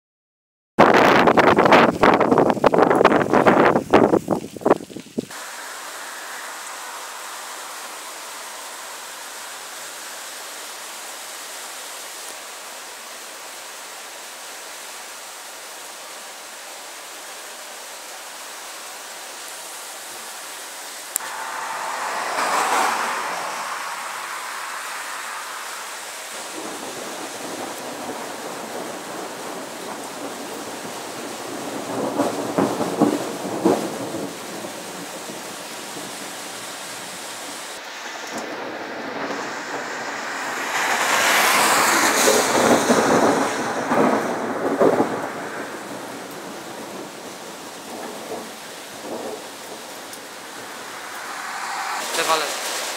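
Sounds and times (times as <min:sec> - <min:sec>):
steady rain hiss: 0:01.2 - 0:52.9
thunder clap and rumble: 0:21.2 - 0:36.3, 0:38.1 - 0:52.9.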